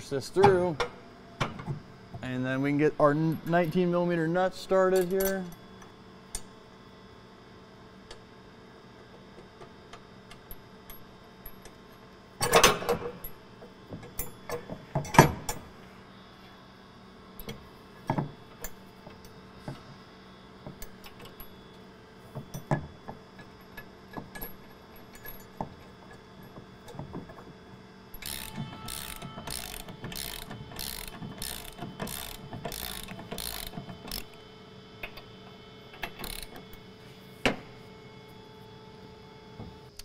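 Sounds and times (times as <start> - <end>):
metal nuts clicking: 28.2 - 34.3
socket ratchet clicking: 28.2 - 34.4, 36.0 - 36.6.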